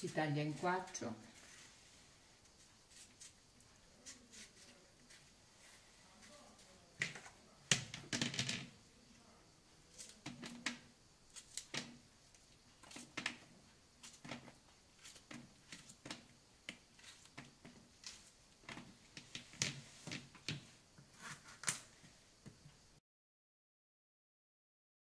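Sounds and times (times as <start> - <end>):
pieces dropping into colander: 7.8 - 8.7
knife cutting zucchini: 9.9 - 10.6.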